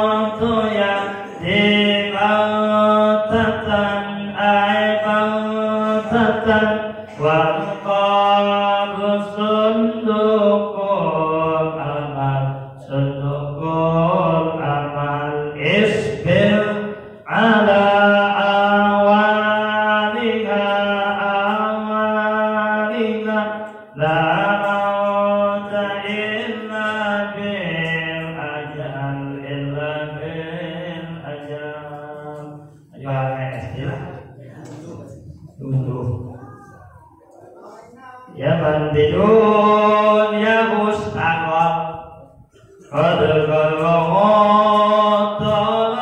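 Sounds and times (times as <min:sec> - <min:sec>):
man chanting into a microphone: 0:00.0 - 0:36.9, 0:38.0 - 0:46.0.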